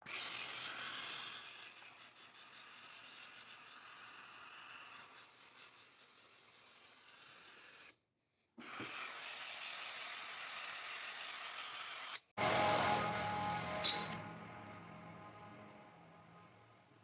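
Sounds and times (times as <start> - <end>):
steady hissing noise: 12.4 - 17.0.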